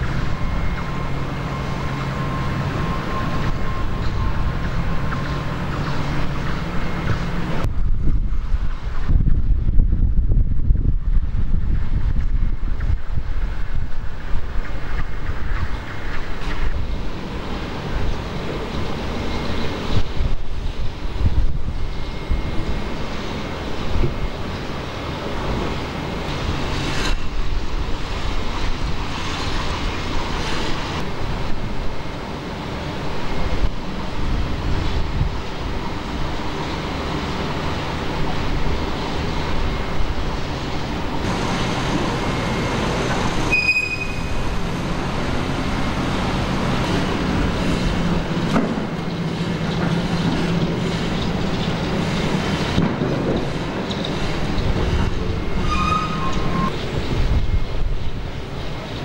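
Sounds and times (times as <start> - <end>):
high squeal: 0.0 - 7.4, 21.7 - 23.6, 38.8 - 46.0, 54.0 - 57.8
crane machinery rumbling: 0.0 - 59.0.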